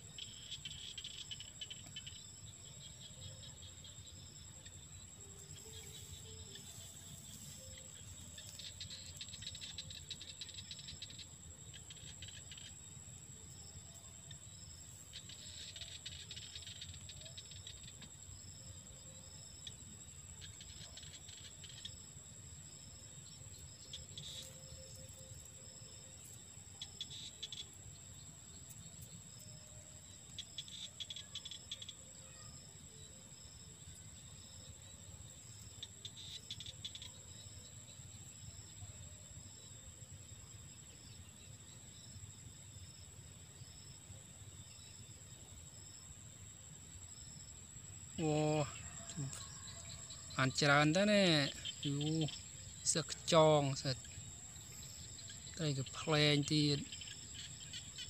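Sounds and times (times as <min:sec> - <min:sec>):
high-pitched insect whine: 0:00.0 - 0:58.0
insect chirps: 0:00.0 - 0:58.0
insect rattling: 0:00.2 - 0:12.8, 0:14.4 - 0:18.2, 0:23.6 - 0:27.7.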